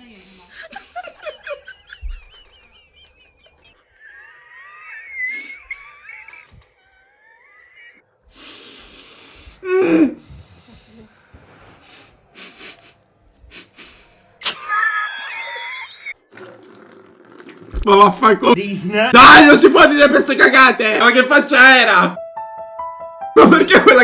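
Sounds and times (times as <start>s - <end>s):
wheezy squeaks of held-in laughter: 4.0s - 8.0s, 14.4s - 16.2s.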